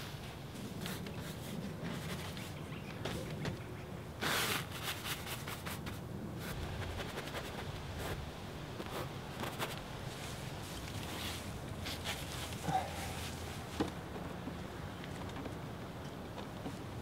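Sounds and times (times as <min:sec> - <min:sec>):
paintbrush rubbing on canvas: 0:04.2 - 0:08.2.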